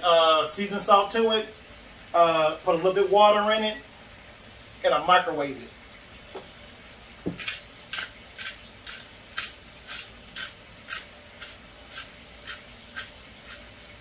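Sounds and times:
pepper shaker rattling: 7.3 - 13.7.

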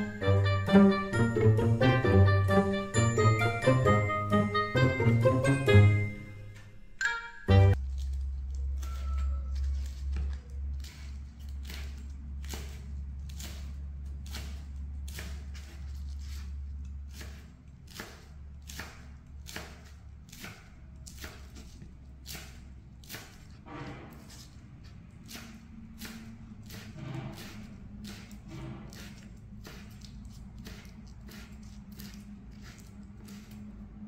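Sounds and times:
knife chopping leaves on cutting board: 7.7 - 34.0.

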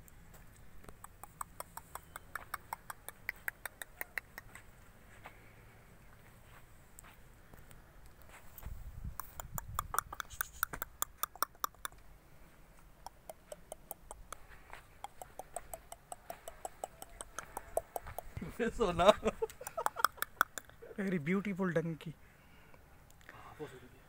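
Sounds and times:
footsteps on hard dirt: 4.4 - 8.9.

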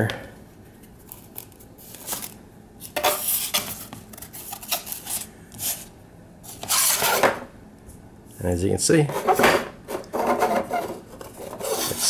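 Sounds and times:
laminate panels scraping and clattering: 9.1 - 12.0.

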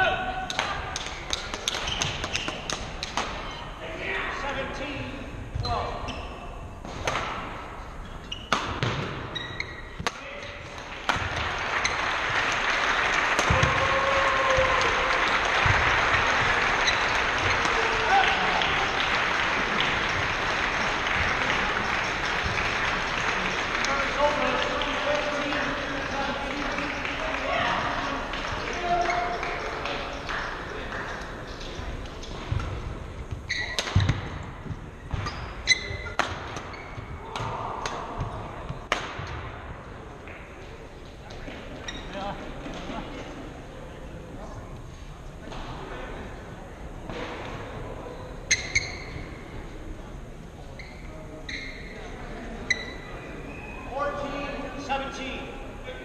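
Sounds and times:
racket hitting shuttlecock: 0.4 - 3.5, 6.8 - 7.6, 8.3 - 12.0, 13.4 - 13.8, 32.2 - 34.5, 35.1 - 38.1, 38.8 - 39.5
shoes squeaking on wooden floor: 1.8 - 3.8, 8.0 - 10.0, 33.2 - 34.2, 35.0 - 37.2
spectators applauding: 10.9 - 31.9.

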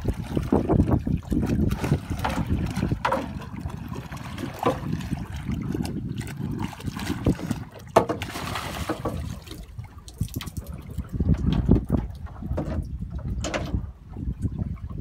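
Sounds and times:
fish splashing and thrashing: 0.0 - 15.0
wind on microphone: 0.0 - 15.0
knocks against boat hull: 7.9 - 8.3.

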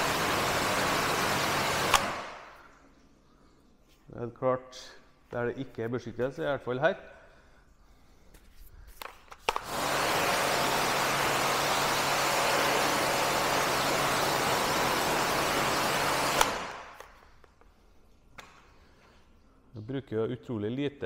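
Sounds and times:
pressure washer spraying water: 0.0 - 2.6, 9.6 - 17.0
pressure washer trigger click: 1.8 - 2.6, 16.3 - 17.2.

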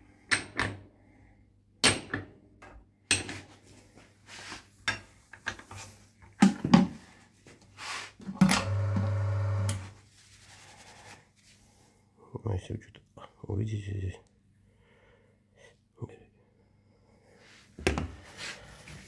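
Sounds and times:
electric motor hum: 8.4 - 10.0.

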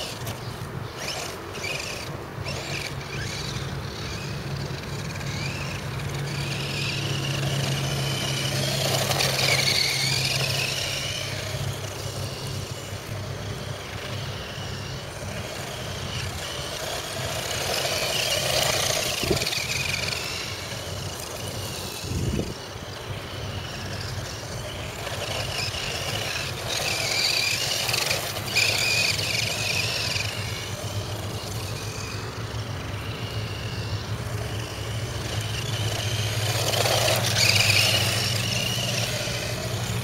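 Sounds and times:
electric motor and gears whine: 0.0 - 40.0.

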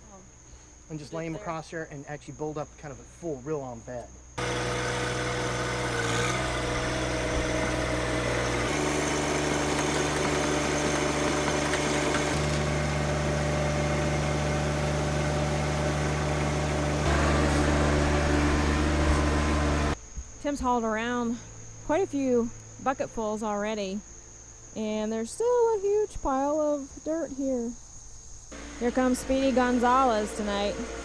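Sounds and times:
tractor diesel engine running: 4.4 - 20.0, 28.6 - 31.0.

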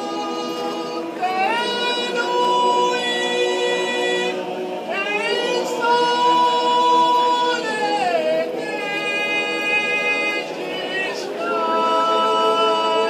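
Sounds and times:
choir singing held notes: 0.0 - 13.0.

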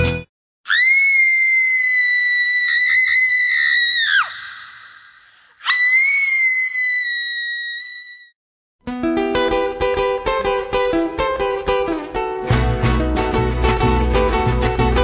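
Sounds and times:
shrill high-pitched scream: 0.6 - 8.4.

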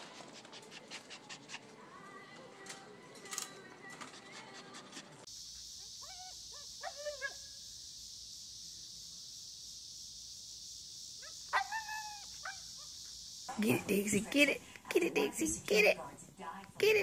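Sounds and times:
steady high hiss: 5.3 - 17.0
husky calling: 11.2 - 13.1.

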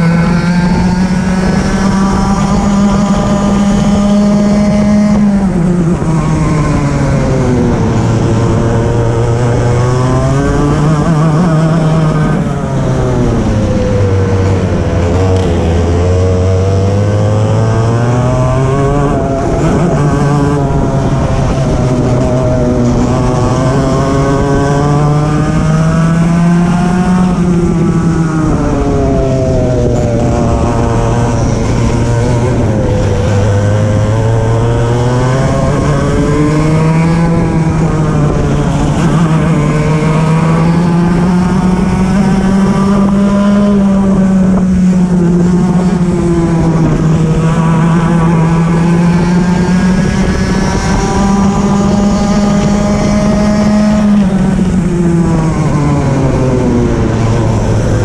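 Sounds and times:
kart engine revving: 0.0 - 58.0.

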